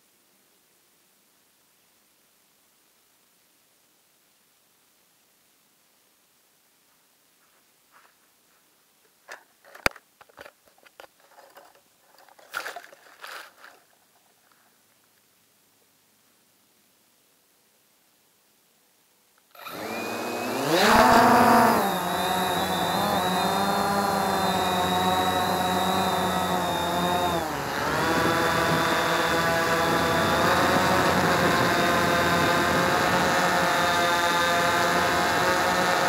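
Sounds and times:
drone propellers whining: 19.6 - 36.0.

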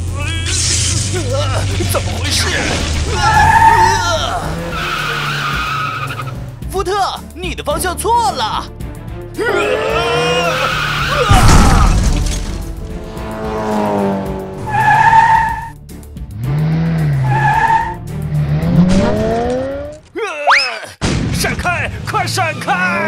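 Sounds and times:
tyres skidding: 0.0 - 6.7, 9.0 - 20.3
background music: 0.0 - 20.3
loud crash: 11.2 - 13.1, 21.0 - 21.6.

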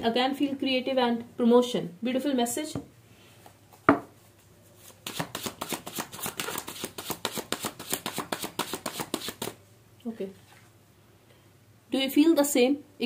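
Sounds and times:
cards being shuffled: 4.8 - 9.6.

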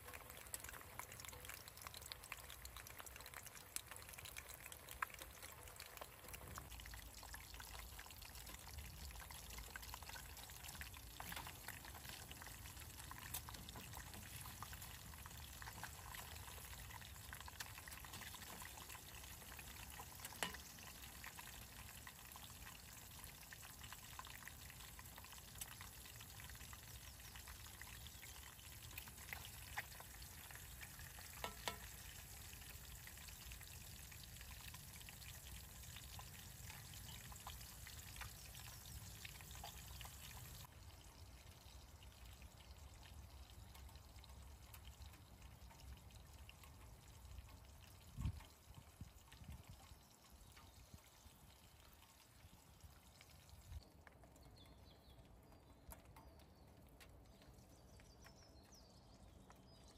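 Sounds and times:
food sizzling and crackling: 0.0 - 40.7.

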